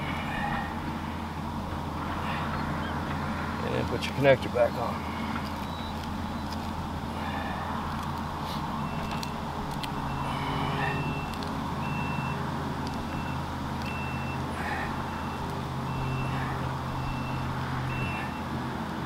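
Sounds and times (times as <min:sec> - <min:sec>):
low engine drone: 0:00.0 - 0:19.0
reversing alarm beeping: 0:05.6 - 0:06.6, 0:08.8 - 0:18.6.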